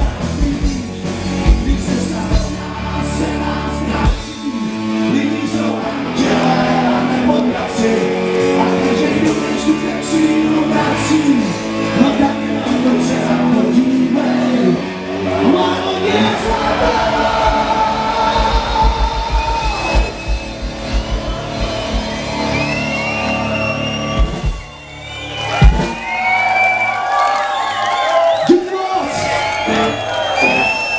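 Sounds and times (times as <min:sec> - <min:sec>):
person singing: 0:00.0 - 0:20.1
live rock band playing: 0:00.0 - 0:26.7.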